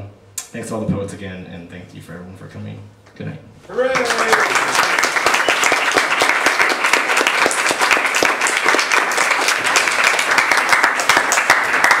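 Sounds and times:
audience clapping: 0:03.7 - 0:12.0.

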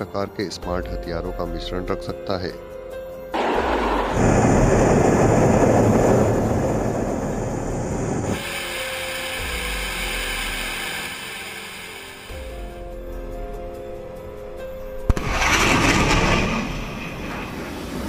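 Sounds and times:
jet engine roar: 0:03.4 - 0:12.3, 0:15.1 - 0:18.0.

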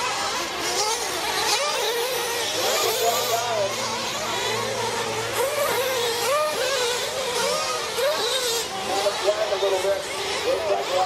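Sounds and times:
small engines screaming at high revs: 0:00.0 - 0:11.0.

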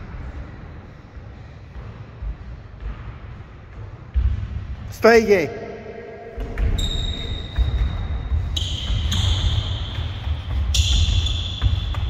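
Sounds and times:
running footsteps on hall floor: 0:06.3 - 0:12.0.

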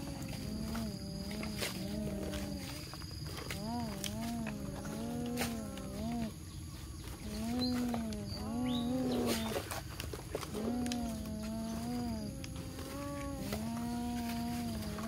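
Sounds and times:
child humming: 0:00.0 - 0:02.9, 0:03.5 - 0:06.4, 0:10.5 - 0:15.0.

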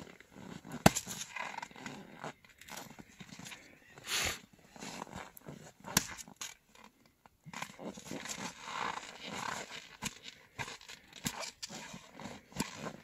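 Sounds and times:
axe striking log: 0:00.7 - 0:01.3, 0:05.8 - 0:06.3.

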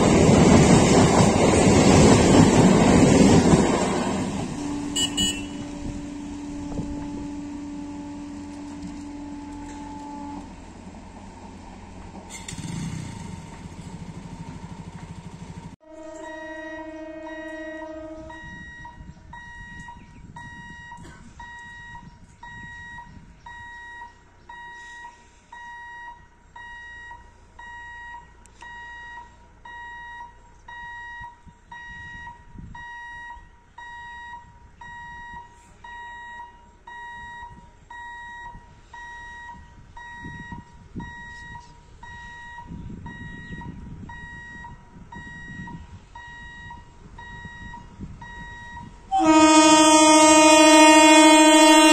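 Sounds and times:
level crossing alarm beeping: 0:16.1 - 0:51.9.

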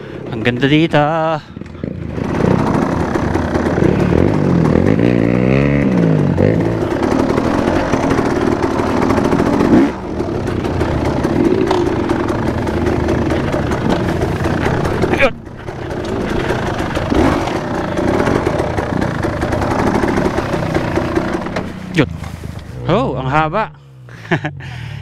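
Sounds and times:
dirt bike engine revving: 0:00.0 - 0:22.7.

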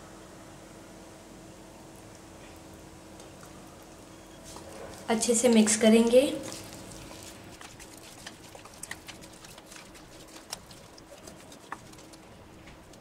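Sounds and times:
spoon stirring wet food: 0:04.4 - 0:13.0.

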